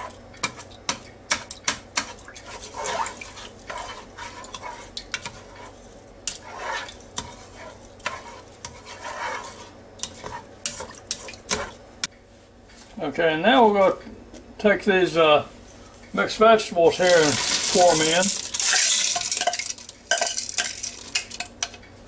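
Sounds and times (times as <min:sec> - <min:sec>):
spoon stirring liquid: 0:00.0 - 0:11.8, 0:16.9 - 0:21.8.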